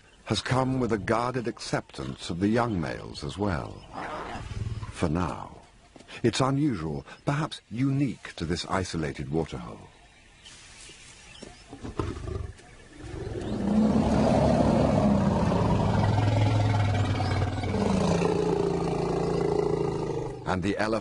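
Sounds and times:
lion roaring: 11.9s - 20.5s.

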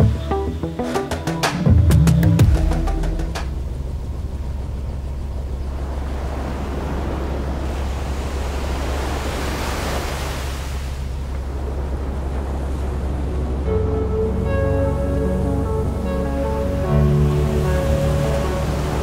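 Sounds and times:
helicopter drone from cabin: 3.4s - 7.7s.

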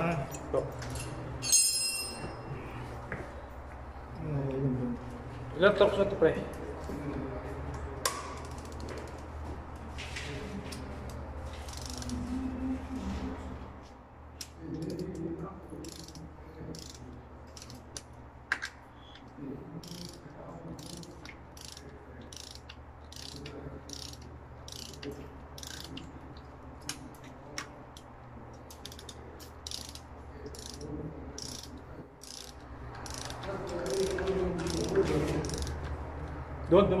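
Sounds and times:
steady low hum: 0.0s - 37.0s
ratchet wrench clicking: 8.4s - 9.2s, 11.6s - 12.2s, 15.8s - 26.0s, 28.6s - 35.9s
sharp metallic clicks: 14.4s - 27.0s, 27.6s - 35.9s.

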